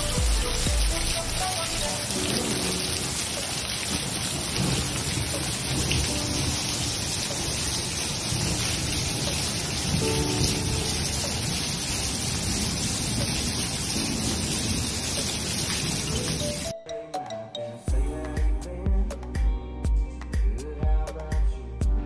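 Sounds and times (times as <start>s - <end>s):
rain on grass and concrete: 0.0s - 16.7s.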